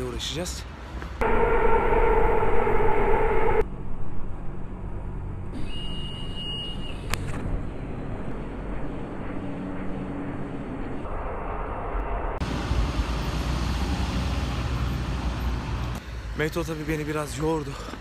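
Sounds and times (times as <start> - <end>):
high steady tone: 1.2 - 3.6
metro train whine and rumble: 1.2 - 14.5.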